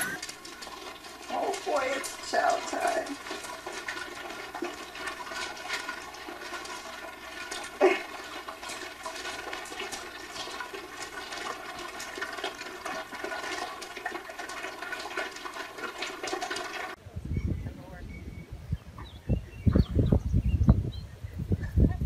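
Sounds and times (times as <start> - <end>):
puppies crunching dry kibble: 0.0 - 17.0.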